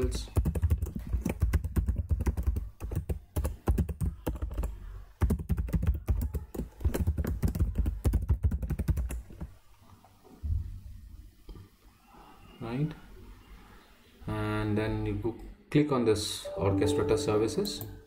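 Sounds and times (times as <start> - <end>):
keyboard typing: 0.0 - 9.5.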